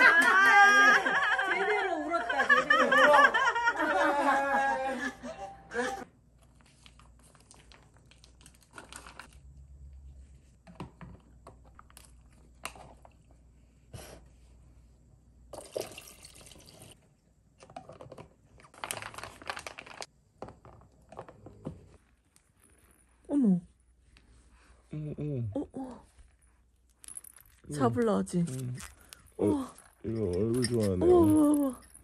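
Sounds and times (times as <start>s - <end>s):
plastic bag crinkling: 18.7s - 20.1s.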